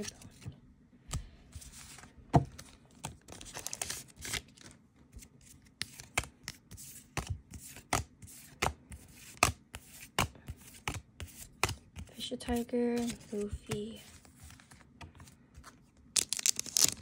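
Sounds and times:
trading cards snapping: 0:16.2 - 0:17.0.

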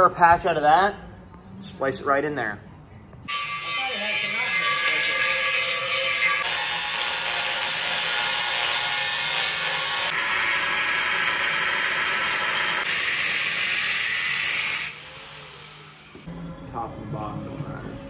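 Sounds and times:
angle grinder cutting steel: 0:03.3 - 0:16.3.

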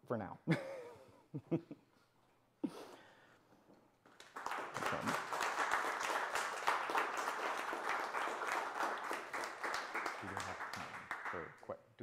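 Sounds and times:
small audience applauding: 0:04.0 - 0:11.8.

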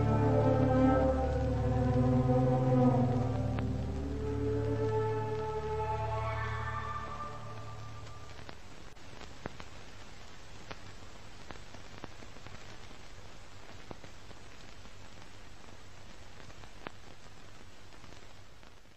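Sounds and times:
low hum: 0:00.0 - 0:08.6
static hiss: 0:00.0 - 0:18.9
faint crackling clicks: 0:07.1 - 0:18.9.

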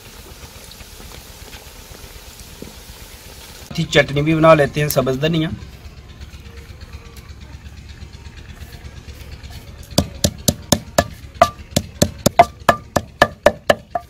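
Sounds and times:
pestle pounding in stone mortar: 0:10.0 - 0:14.0.

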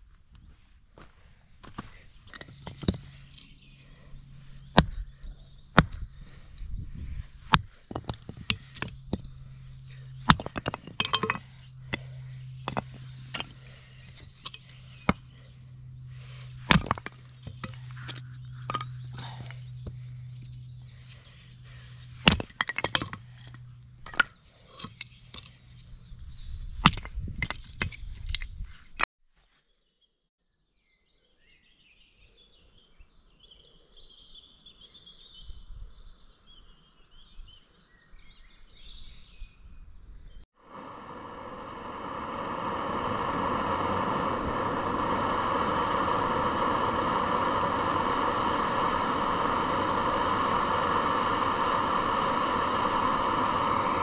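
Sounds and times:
faint birdsong: 0:01.8 - 0:28.2, 0:29.5 - 0:54.0
hatchet splitting wood: 0:04.8 - 0:05.0, 0:05.7 - 0:06.1, 0:07.5 - 0:09.3, 0:16.7 - 0:18.9, 0:22.2 - 0:23.3
gas camping stove hissing: 0:40.6 - 0:54.0
water boiling in pot: 0:40.8 - 0:54.0.

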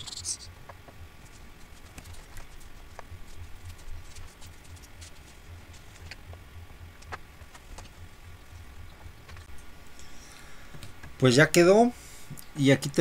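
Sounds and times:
low hum: 0:00.0 - 0:12.6.

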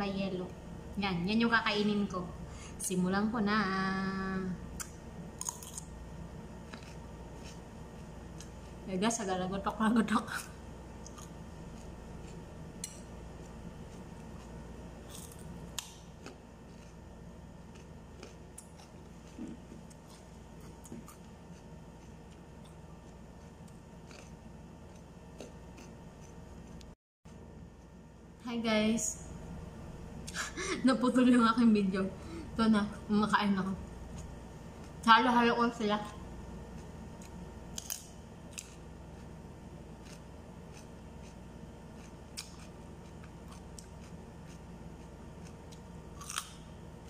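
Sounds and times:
low steady hum: 0:00.0 - 0:47.0
chewing crunchy vegetables: 0:04.8 - 0:05.9, 0:06.6 - 0:08.9, 0:11.0 - 0:26.9, 0:36.0 - 0:46.7.

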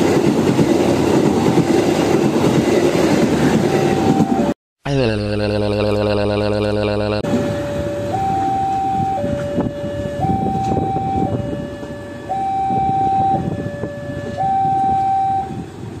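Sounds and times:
train rumbling on rails: 0:00.0 - 0:04.5, 0:07.3 - 0:16.0
two-tone siren: 0:03.6 - 0:15.7.

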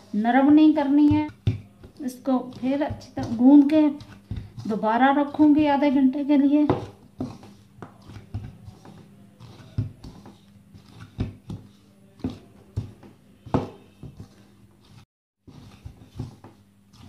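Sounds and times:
hands kneading dough in a bowl: 0:00.0 - 0:17.0.

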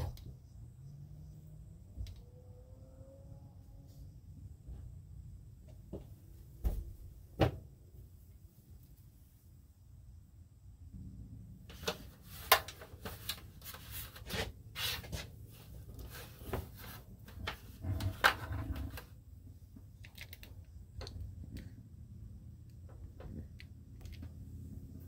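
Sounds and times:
hands rustling electrical wiring: 0:11.7 - 0:25.0.

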